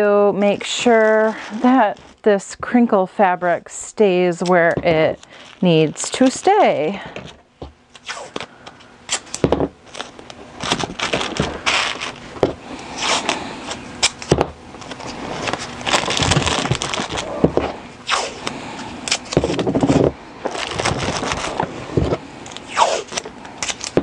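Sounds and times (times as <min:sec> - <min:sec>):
plastic crinkling: 0:00.5 - 0:02.3, 0:04.4 - 0:07.4, 0:08.0 - 0:17.8, 0:18.4 - 0:24.0
tape being pulled and torn: 0:07.2 - 0:08.5, 0:09.1 - 0:12.2, 0:13.0 - 0:21.7, 0:22.4 - 0:24.0.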